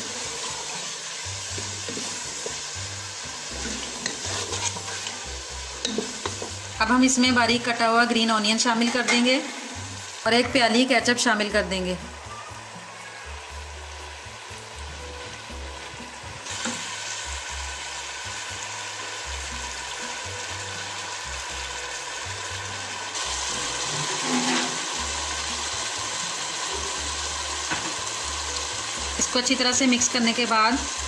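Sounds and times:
sauce sizzling in a pot: 0.0 - 31.0
wooden spoon stirring: 3.5 - 5.2.

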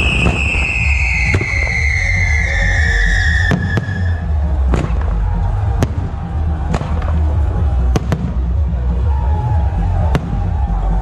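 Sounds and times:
fireworks bursting bangs: 0.0 - 2.6, 3.2 - 8.5
steady low rumble: 2.3 - 11.0.

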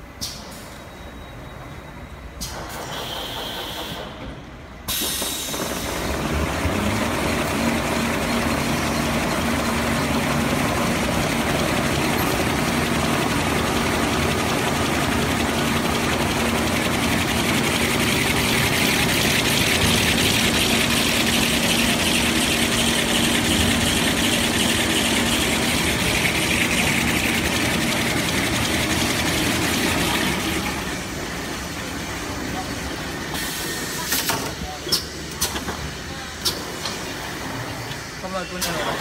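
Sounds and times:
hiss: 2.4 - 4.2, 4.9 - 6.2, 33.3 - 34.2
paper rewinder machine running: 5.5 - 32.8.

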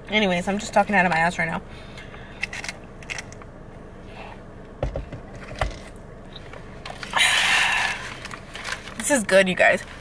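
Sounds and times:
car interior hum: 0.0 - 10.0.

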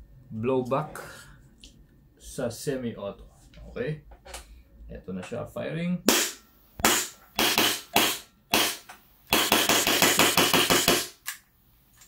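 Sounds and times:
airsoft pistol shots: 6.1 - 11.2.

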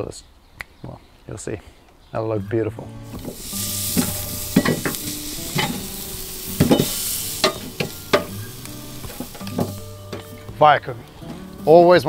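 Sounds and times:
wood fire crackling and hissing: 2.9 - 12.0.

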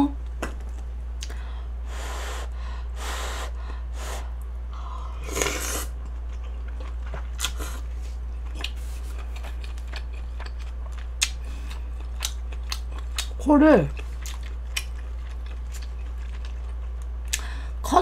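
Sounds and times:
steady low hum: 0.0 - 18.0
person slurping noodles: 5.2 - 5.9
chewing with mouth clicks: 5.4 - 17.5.

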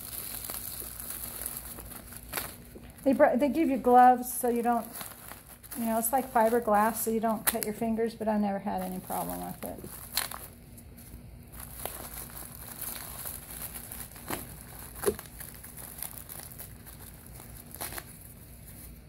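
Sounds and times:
plastic wrapping crinkling: 0.0 - 19.0.

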